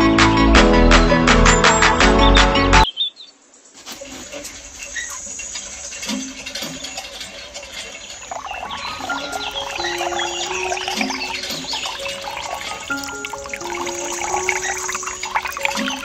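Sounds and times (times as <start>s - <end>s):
small chirps: 4.3s - 16.0s
water trickling into trough: 4.4s - 16.0s.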